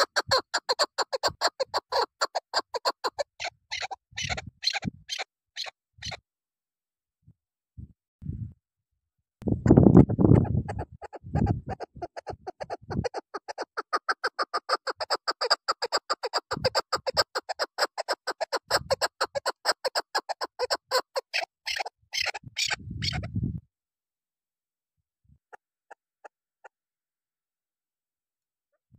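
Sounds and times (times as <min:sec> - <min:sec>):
harsh bird calls: 0:00.0 - 0:06.2
partridge clucking call: 0:00.0 - 0:06.2, 0:10.4 - 0:23.3.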